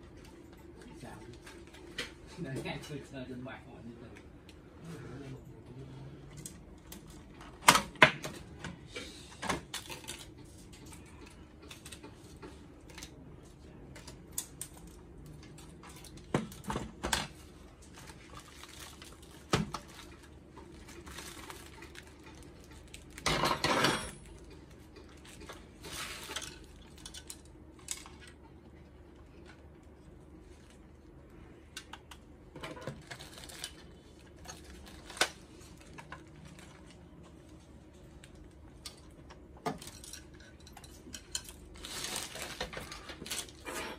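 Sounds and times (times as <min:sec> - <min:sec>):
plastic wrap crinkling: 0:17.8 - 0:23.2, 0:32.9 - 0:37.5, 0:41.7 - 0:43.6.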